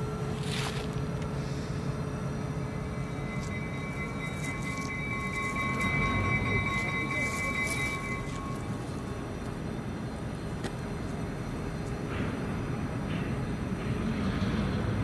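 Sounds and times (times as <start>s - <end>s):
faint high-pitched whine: 0.0s - 12.0s
diesel locomotive engine rumbling: 0.0s - 15.0s.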